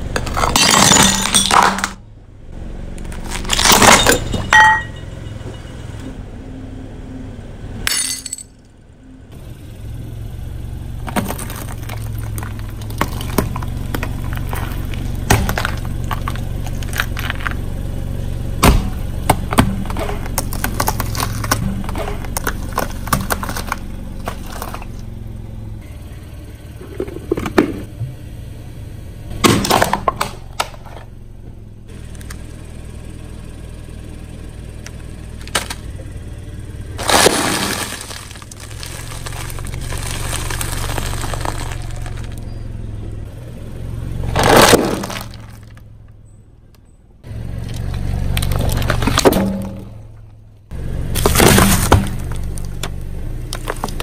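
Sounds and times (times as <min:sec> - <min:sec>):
car engine running: 0:00.0 - 0:54.0
tyres crunching brittle objects: 0:00.2 - 0:02.0, 0:03.0 - 0:04.4, 0:11.0 - 0:17.8, 0:18.6 - 0:25.1, 0:35.3 - 0:36.0, 0:37.0 - 0:42.6, 0:44.3 - 0:45.9, 0:47.6 - 0:50.0, 0:51.0 - 0:54.0.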